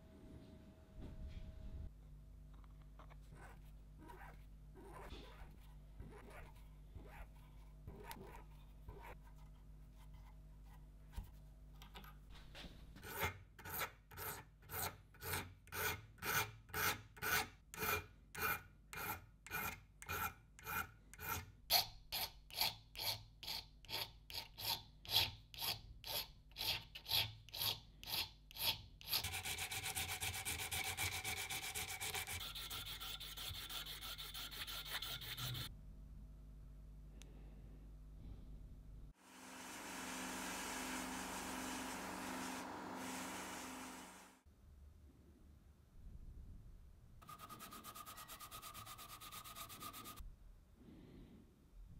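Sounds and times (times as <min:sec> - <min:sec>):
hand filing metal: 0:13.0 - 0:35.7, 0:47.2 - 0:50.2.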